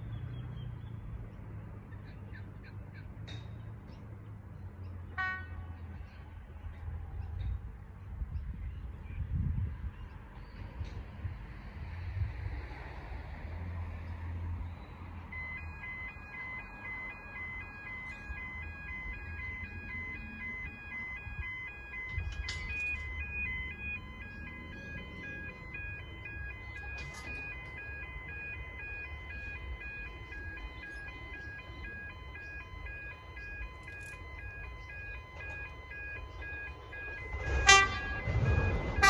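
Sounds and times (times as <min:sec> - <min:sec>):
level crossing warning bell: 0:15.2 - 0:39.0.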